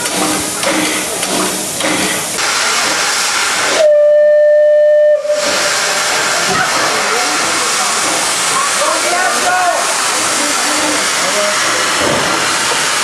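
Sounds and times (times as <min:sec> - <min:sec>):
steam locomotive hissing: 0:00.0 - 0:13.0
steam whistle blast: 0:03.7 - 0:05.7.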